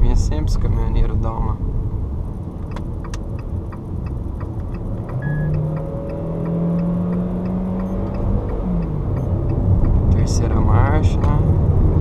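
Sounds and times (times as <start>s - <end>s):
car engine: 0.0s - 12.0s
road noise: 0.0s - 12.0s
light regular ticking: 2.4s - 10.7s.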